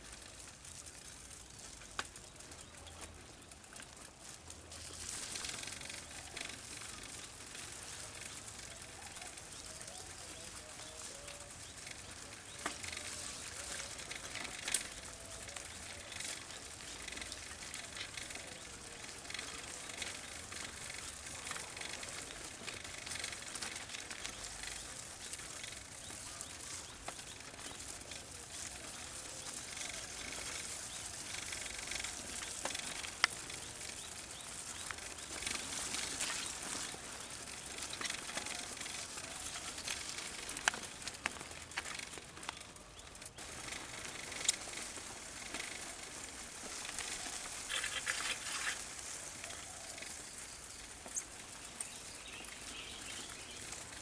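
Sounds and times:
birds calling: 0:05.9 - 0:54.0.

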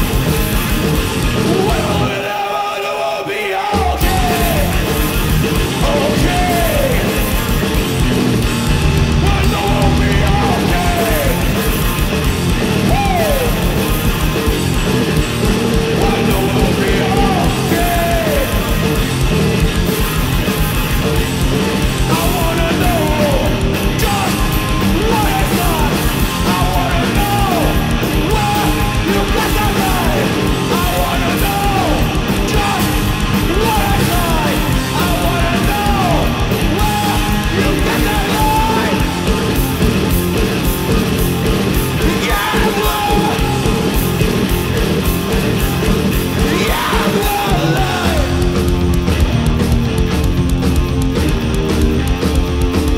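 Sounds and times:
drum kit with crashing cymbals: 0:00.0 - 0:02.2, 0:03.7 - 0:52.9
electric guitar: 0:00.0 - 0:02.4, 0:03.8 - 0:52.9
shouted vocals: 0:01.4 - 0:07.4, 0:08.9 - 0:11.8, 0:12.6 - 0:14.0, 0:15.7 - 0:19.2, 0:21.8 - 0:39.8, 0:41.7 - 0:48.9.

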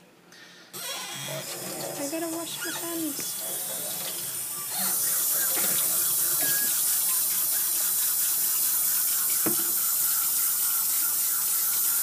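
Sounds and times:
faucet running into metal sink: 0:04.0 - 0:12.0
small knock: 0:09.4 - 0:09.7.

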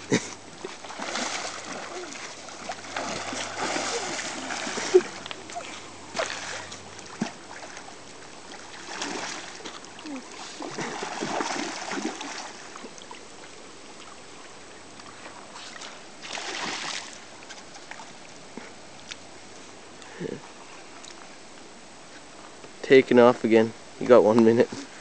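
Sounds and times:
river current rushing: 0:00.0 - 0:14.0
fish thrashing and splashing: 0:00.6 - 0:13.0.

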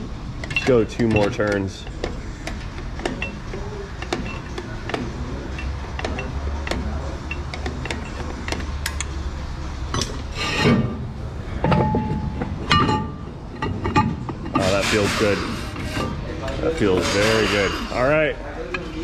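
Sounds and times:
brake adjuster clicking: 0:00.4 - 0:09.2
clattering knocks: 0:11.6 - 0:15.1.

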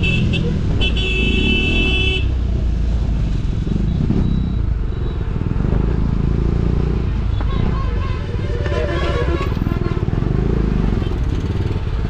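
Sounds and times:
vehicle horn: 0:00.0 - 0:02.3, 0:07.3 - 0:10.3
motorcycle engine running: 0:09.4 - 0:12.0.

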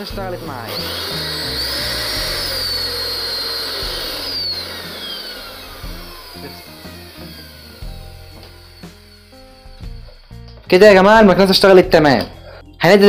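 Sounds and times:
vacuum cleaner motor whine: 0:00.0 - 0:10.3.

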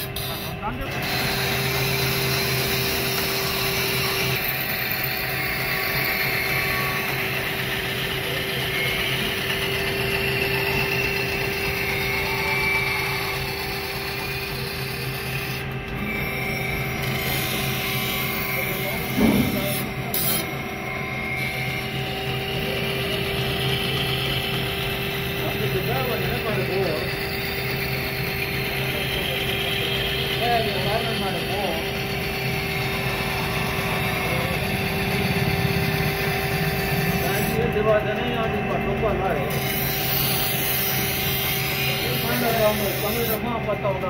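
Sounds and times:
grinding machine motor hum: 0:00.0 - 0:44.0
short knock: 0:19.1 - 0:20.0
blade grinding hiss: 0:39.5 - 0:43.4.

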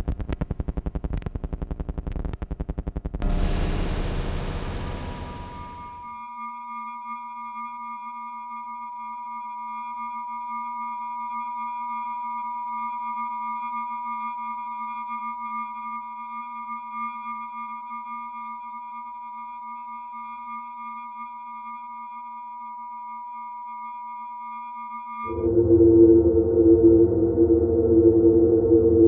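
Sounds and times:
electronic sine tone drone: 0:01.0 - 0:29.0
loud wash of noise: 0:03.2 - 0:06.0.

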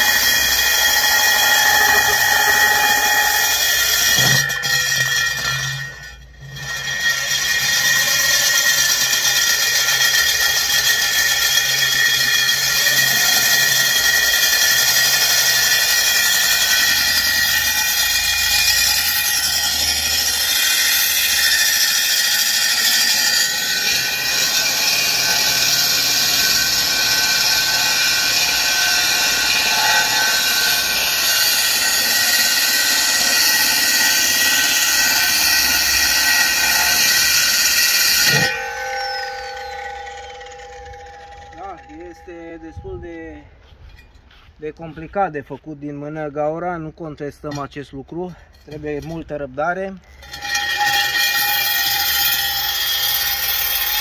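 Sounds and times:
core drill grinding into concrete: 0:00.0 - 0:42.8, 0:49.9 - 0:54.0
high motor whine: 0:18.8 - 0:43.4.

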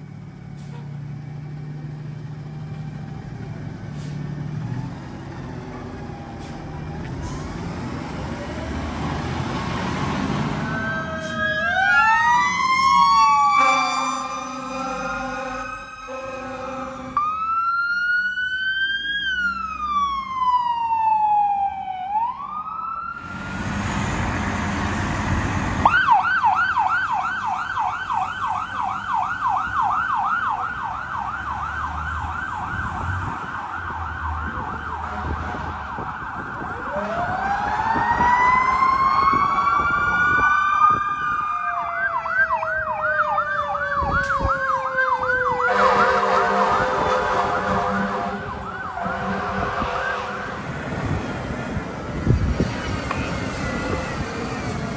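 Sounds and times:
second siren sliding down: 0:01.7 - 0:24.4, 0:25.6 - 0:54.9
siren wailing: 0:10.5 - 0:23.4, 0:25.8 - 0:51.3
siren yelping: 0:10.6 - 0:23.3, 0:25.8 - 0:50.2.

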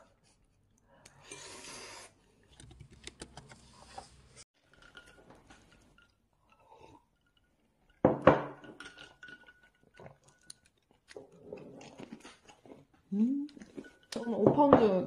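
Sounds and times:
dishes clinking: 0:06.8 - 0:11.3, 0:13.5 - 0:15.0.

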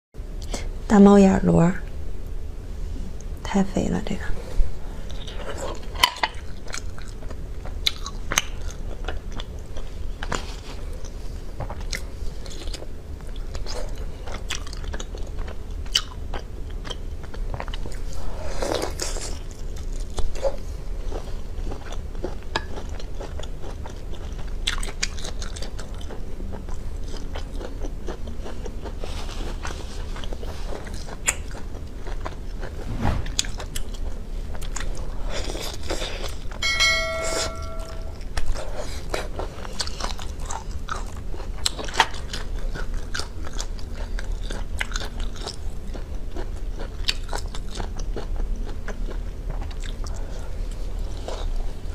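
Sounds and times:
person chewing wetly: 0:05.1 - 0:32.8, 0:38.4 - 0:51.9.

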